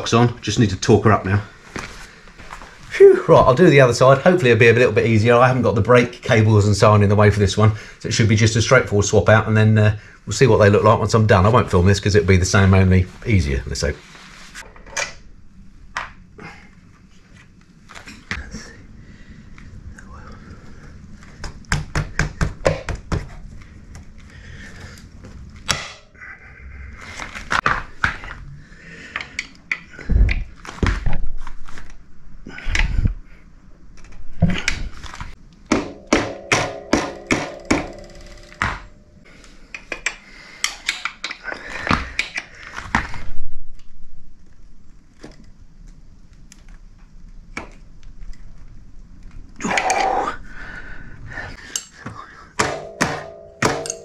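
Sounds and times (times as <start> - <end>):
tools knocking and clicking on metal: 35.7 - 39.0, 39.7 - 41.4, 51.7 - 54.0
ringing metallic clank: 35.9 - 39.2, 52.7 - 54.0.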